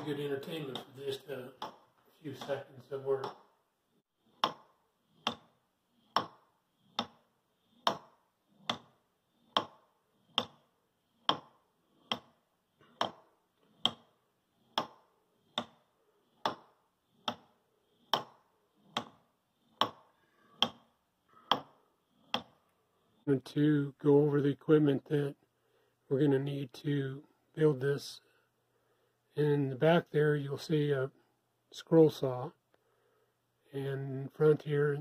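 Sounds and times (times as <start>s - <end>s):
wooden escapement ticking: 0.0s - 3.6s, 4.3s - 22.6s.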